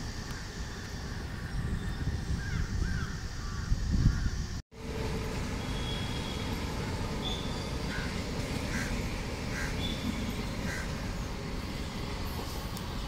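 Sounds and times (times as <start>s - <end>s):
trains and city traffic rumble: 0.0s - 13.0s
crows cawing: 7.9s - 9.9s, 10.6s - 11.0s.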